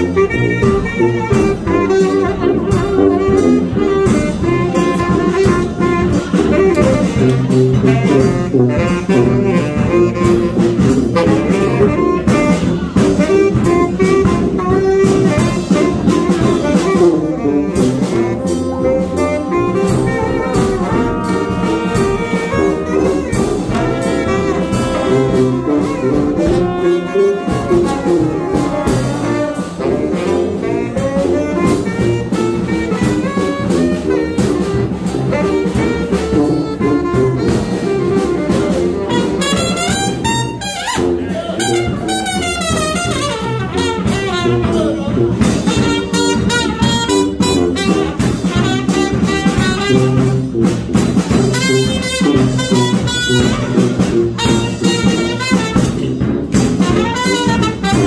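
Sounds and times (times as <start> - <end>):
bass drum: 0.0 - 58.0
brass band playing jazz: 0.0 - 58.0.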